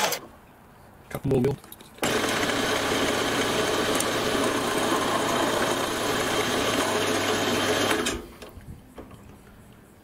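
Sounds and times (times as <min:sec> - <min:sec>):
metal lathe running: 0:02.0 - 0:08.2.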